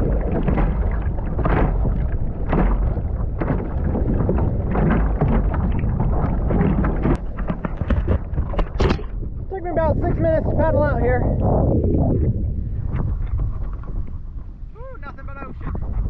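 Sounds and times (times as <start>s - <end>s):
water splashing against hull: 0.0s - 16.0s
wind buffeting microphone: 0.0s - 16.0s.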